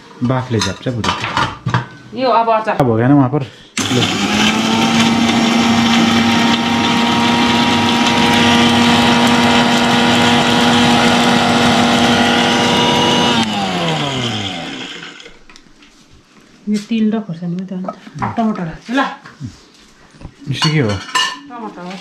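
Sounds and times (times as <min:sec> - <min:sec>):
motor winding down: 0:03.8 - 0:15.3
mixer grinder running: 0:03.8 - 0:15.5.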